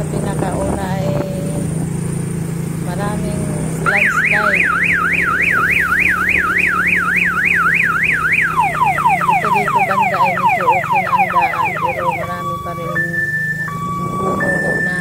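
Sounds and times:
motor scooter engine droning: 0.0s - 15.0s
electronic alarm siren warbling: 3.8s - 15.0s.

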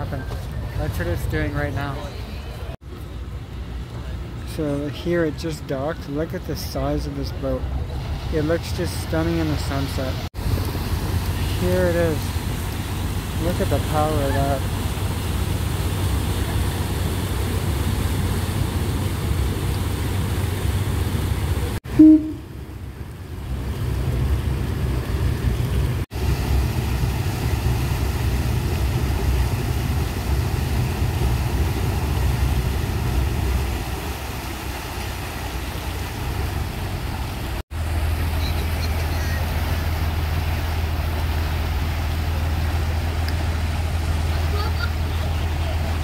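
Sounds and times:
propeller churning water: 0.0s - 46.0s
ship engine rumbling: 0.0s - 46.0s
loud pitched sound: 21.8s - 22.5s.

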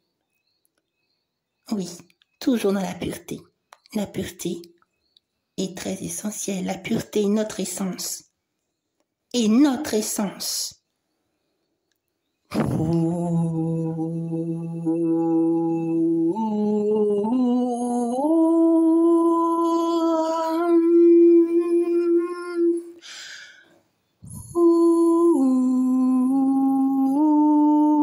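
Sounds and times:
person humming a melody: 12.5s - 23.0s, 24.3s - 28.0s
breath: 23.0s - 24.0s.

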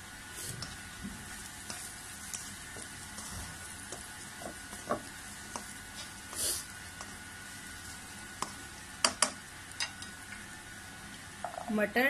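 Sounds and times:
vegetables sizzling in oil: 0.0s - 12.0s
spatula scraping and tapping pan: 0.6s - 7.2s, 8.3s - 10.2s.

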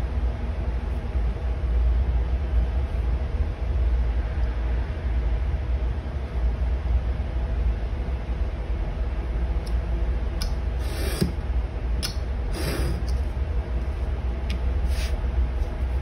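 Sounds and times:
steady low hum: 0.0s - 16.0s
knife cutting leather: 10.8s - 11.4s.

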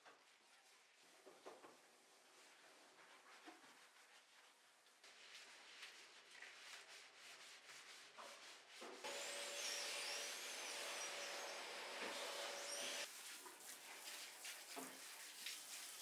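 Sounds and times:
gloved hand scrubbing wet glass: 0.2s - 8.8s, 13.0s - 16.0s
faint high squeaks: 10.7s - 13.1s.

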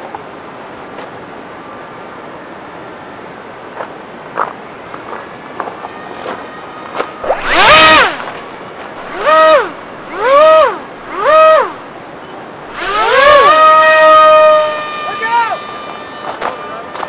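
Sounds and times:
electric motor and propeller whine: 7.0s - 12.0s, 12.6s - 17.0s.

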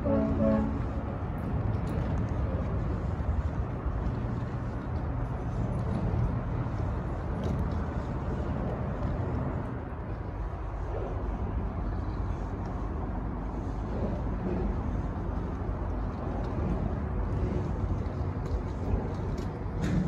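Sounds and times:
wheelchair wheels rolling on concrete: 11.9s - 20.0s.

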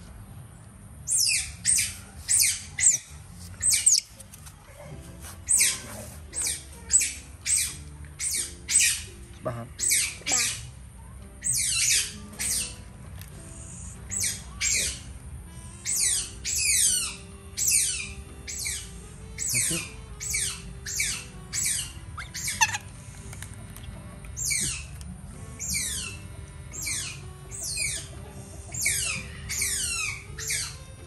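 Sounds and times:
young otter squealing: 1.1s - 4.1s, 5.5s - 10.7s, 11.4s - 12.8s, 13.6s - 15.1s, 15.8s - 23.0s, 24.4s - 25.0s, 25.6s - 31.0s.

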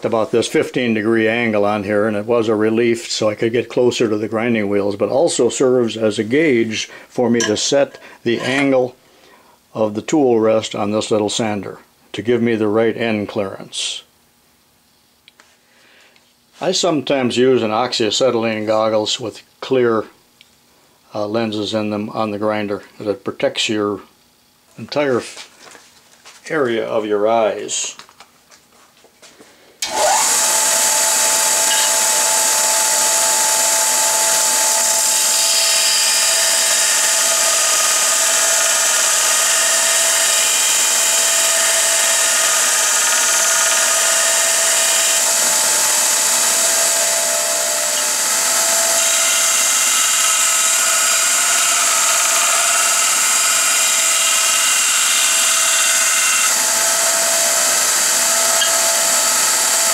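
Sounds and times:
belt sander grinding metal: 29.8s - 59.9s
motor hum: 29.8s - 59.9s.

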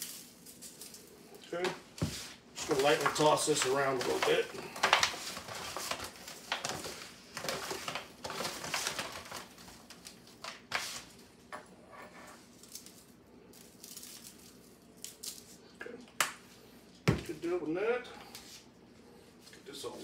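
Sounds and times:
foil pan crinkling: 2.6s - 11.1s.

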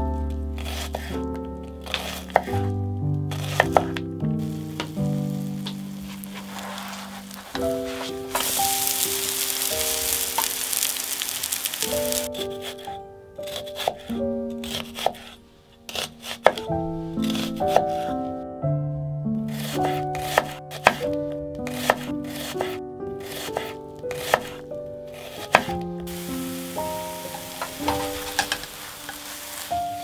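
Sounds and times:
background music: 0.0s - 30.0s
knife chopping on wooden board: 3.3s - 4.0s, 15.9s - 18.0s, 19.5s - 21.1s, 21.7s - 24.6s, 25.2s - 25.8s
batter sizzling in a pan: 3.3s - 12.3s, 25.2s - 30.0s.

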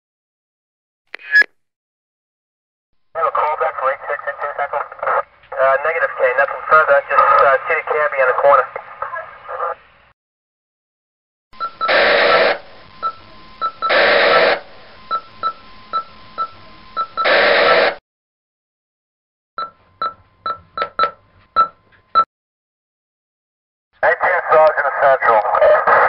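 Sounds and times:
short electronic beeps: 1.2s - 1.5s
radio static hiss: 3.2s - 10.1s, 11.9s - 15.1s, 16.7s - 18.0s, 24.0s - 26.0s.

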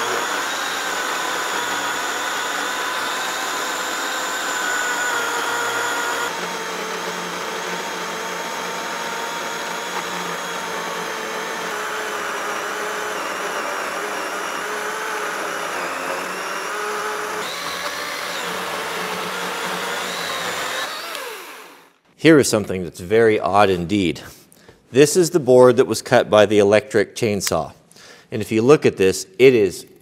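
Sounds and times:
electric chainsaw motor whine: 0.0s - 21.9s
chain cutting wood: 19.7s - 21.6s.

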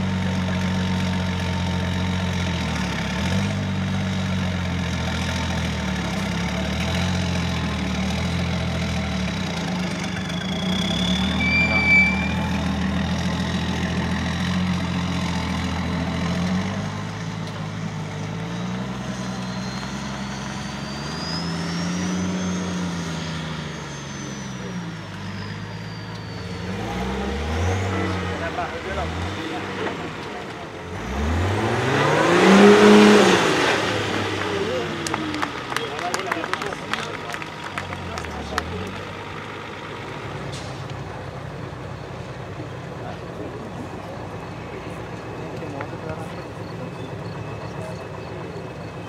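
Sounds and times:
truck engine at low revs: 0.0s - 49.0s
short high squeal: 9.9s - 13.5s, 19.1s - 28.2s.

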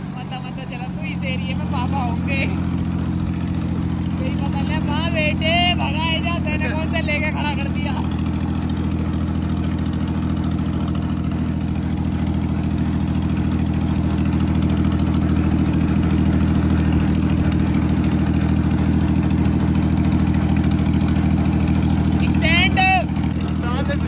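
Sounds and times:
tractor diesel engine running: 0.0s - 24.0s.

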